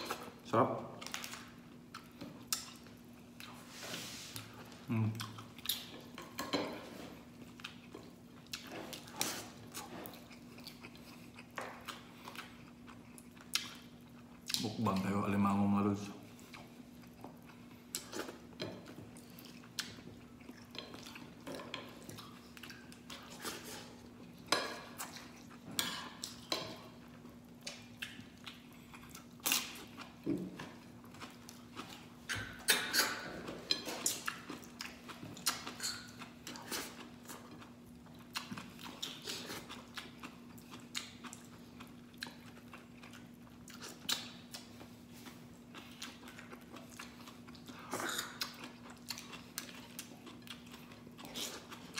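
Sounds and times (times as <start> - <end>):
wet chewing: 25.0 - 51.9.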